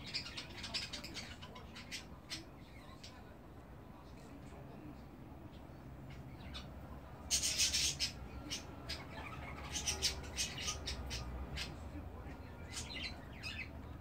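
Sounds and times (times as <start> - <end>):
budgerigars chirping: 0.0 - 3.2, 6.1 - 11.8.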